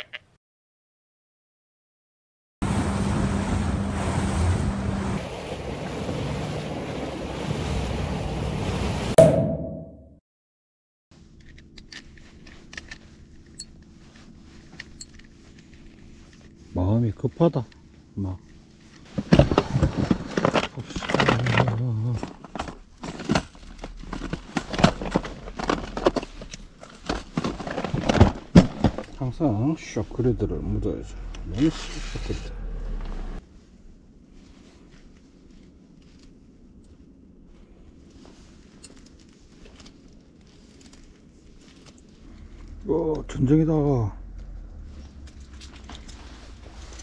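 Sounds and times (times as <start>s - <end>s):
boat engine running: 2.6s - 9.2s, 23.6s - 33.4s, 42.0s - 47.0s
water noise: 2.6s - 9.8s, 41.8s - 47.0s
crinkling and rustling: 11.2s - 47.0s
plastic lure cases clattering: 19.2s - 29.2s.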